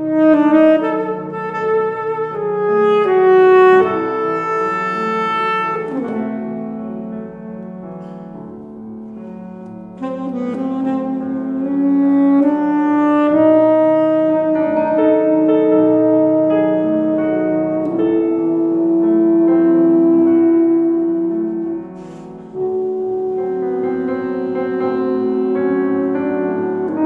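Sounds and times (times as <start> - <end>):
saxophone slow melody: 0.0 - 8.4, 9.0 - 27.0
sustained accompaniment: 10.0 - 27.0.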